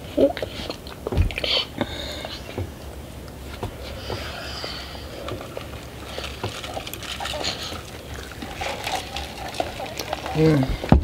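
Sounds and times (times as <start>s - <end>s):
soft chewing: 3.3s - 10.9s.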